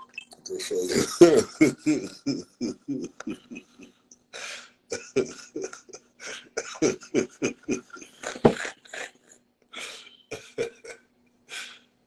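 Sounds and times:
man laughing hard: 0.8 - 3.9, 4.9 - 9.2, 9.8 - 11.0
breathy gasp: 4.4 - 4.8, 9.8 - 10.2.

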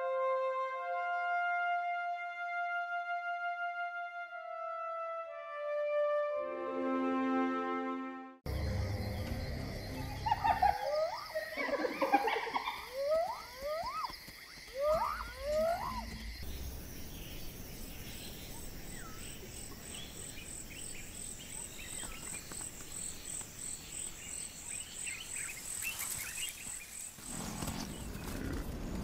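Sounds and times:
birds chirping: 8.5 - 29.0
insect pulsing: 8.5 - 29.0
short rising animal calls: 14.7 - 16.2.

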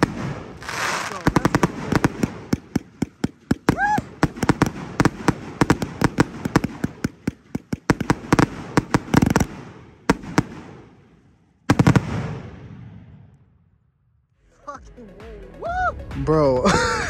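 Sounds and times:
firework reports: 0.0 - 13.3.

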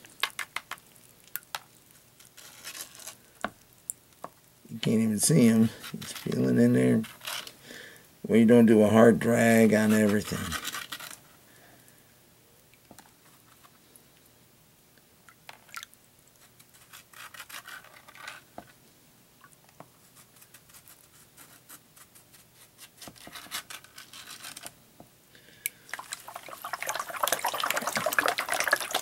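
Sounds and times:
gritty sand scratching in pan: 2.2 - 3.4, 4.8 - 7.6, 9.3 - 11.3, 16.4 - 18.5, 20.0 - 24.7
water sloshing: 25.9 - 29.0.

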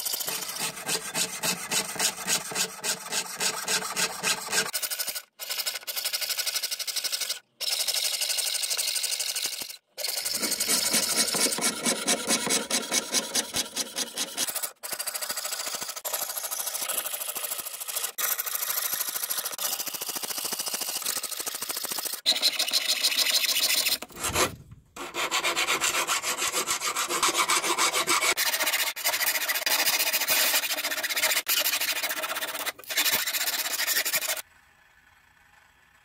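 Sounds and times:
hand file rasping metal: 0.0 - 4.8, 10.0 - 14.7, 22.1 - 34.4
saw cutting metal sheet: 0.0 - 4.8, 10.0 - 17.1, 21.0 - 34.4.

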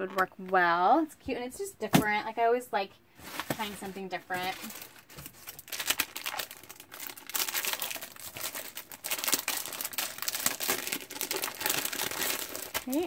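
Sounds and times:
plastic packaging crinkling: 3.2 - 13.0.

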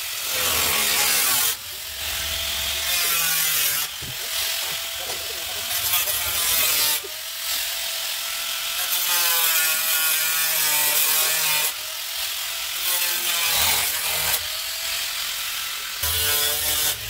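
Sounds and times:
angle grinder grinding steel: 0.0 - 17.0.

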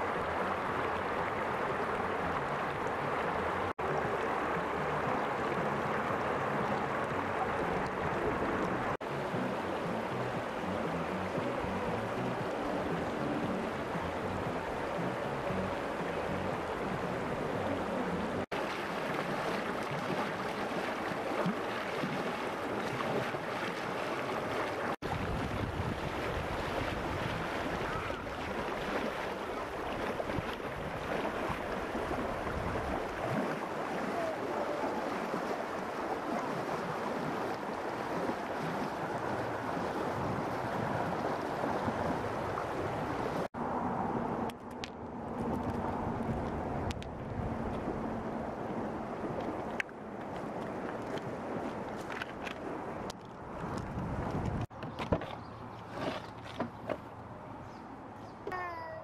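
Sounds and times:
river rushing over stones: 0.0 - 43.5.

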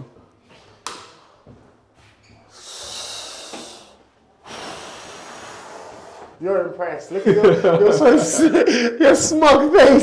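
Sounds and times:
person exhaling breathily: 2.5 - 6.3.

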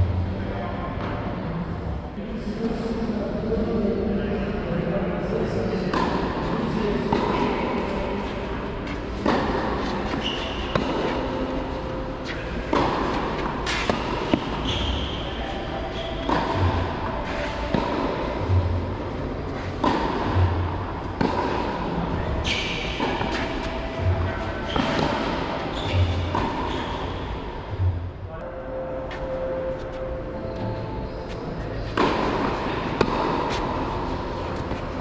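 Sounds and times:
tennis ball bouncing: 5.9 - 6.3, 7.0 - 27.8, 31.9 - 35.0
racquets striking tennis ball: 7.0 - 15.2, 15.9 - 27.4, 31.9 - 35.0.

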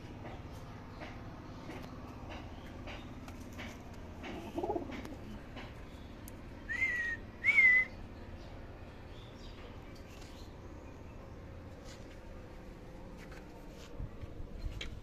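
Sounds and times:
pigeon cooing: 4.3 - 5.4.

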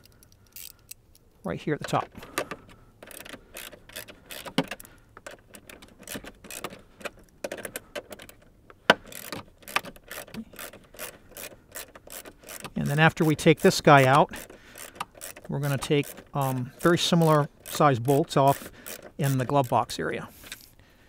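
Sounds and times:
ratchet clicking: 0.0 - 1.0, 3.0 - 8.4, 9.0 - 19.7.

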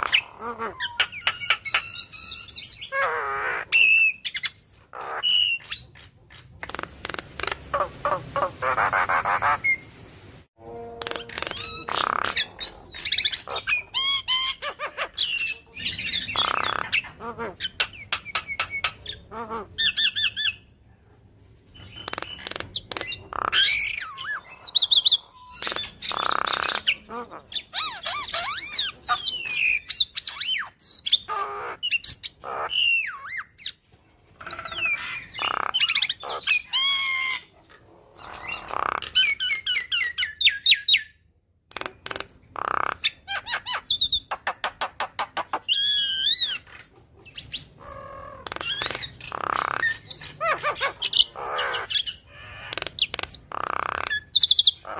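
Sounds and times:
bird singing varied song: 0.0 - 6.1, 11.0 - 20.7, 21.7 - 33.8, 38.2 - 41.3, 42.0 - 54.9.

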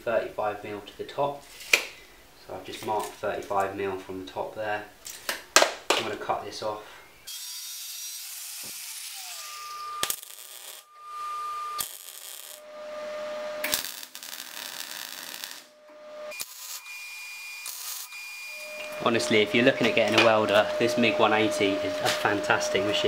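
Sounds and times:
welder crackling hiss: 7.3 - 12.7, 13.6 - 15.7, 16.3 - 23.0
angle grinder cutting steel: 7.3 - 23.0.

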